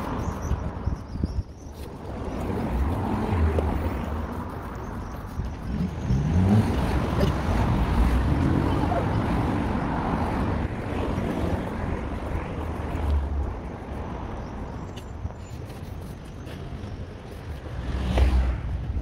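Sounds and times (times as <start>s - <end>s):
passing vehicles rumble and hiss: 5.7s - 14.6s.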